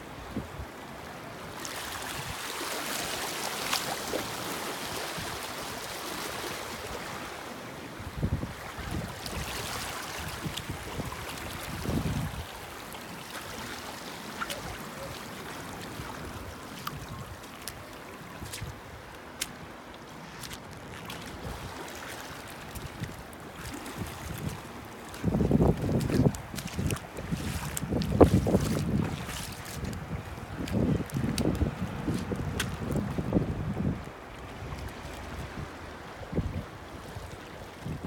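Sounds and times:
sea waves washing onto shore: 0:00.0 - 0:38.0
wind buffeting microphone: 0:10.3 - 0:12.6, 0:22.8 - 0:36.8.

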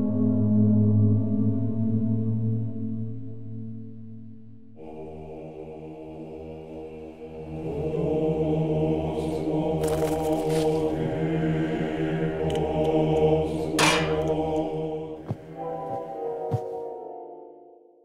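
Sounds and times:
chant-like drone music: 0:00.0 - 0:17.4.

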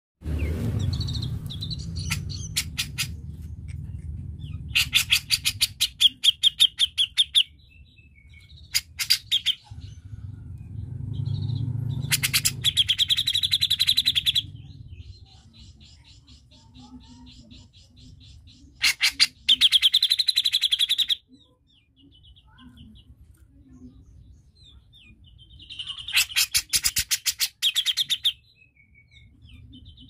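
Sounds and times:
low steady rumble: 0:00.2 - 0:16.5
bird chattering trills: 0:00.4 - 0:07.6, 0:08.3 - 0:10.2, 0:11.2 - 0:23.1, 0:24.7 - 0:28.5.

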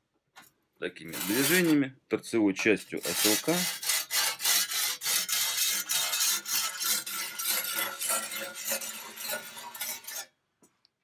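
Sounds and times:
whetstone scraping on steel blade: 0:01.1 - 0:01.8, 0:03.0 - 0:10.4.

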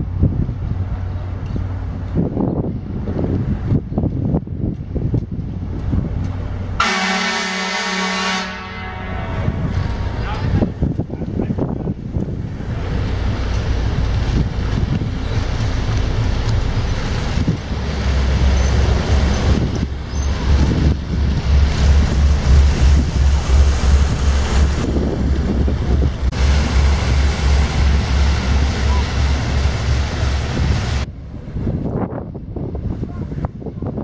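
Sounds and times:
wind buffeting microphone: 0:00.0 - 0:06.8, 0:09.2 - 0:34.0
ship engine throbbing: 0:06.0 - 0:31.9
propeller wash churning water: 0:12.6 - 0:31.1.

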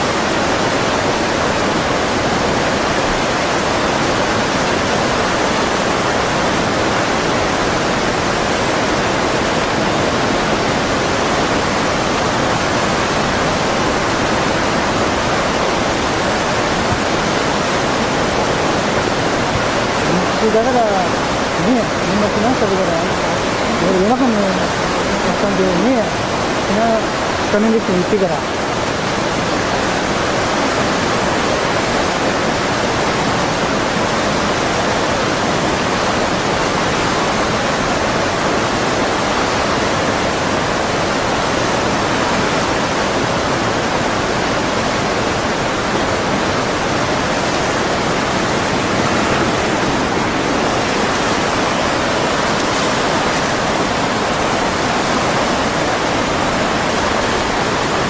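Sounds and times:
loud rushing noise: 0:43.6 - 0:58.0.

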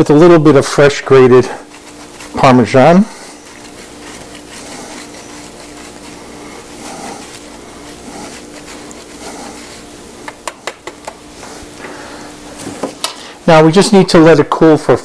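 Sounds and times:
steady hum: 0:00.0 - 0:15.0
cheese grating on metal grater: 0:01.2 - 0:10.2.

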